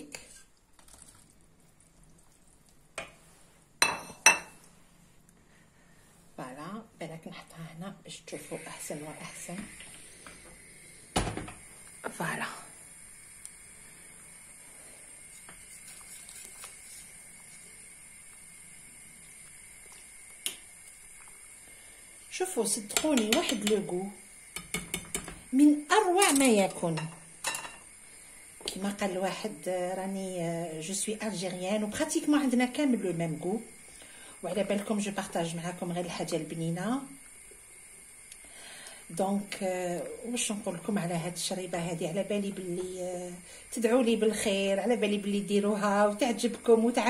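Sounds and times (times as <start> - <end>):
steady hiss: 1.4 - 47.0
whisk stirring thick soup: 15.4 - 17.1.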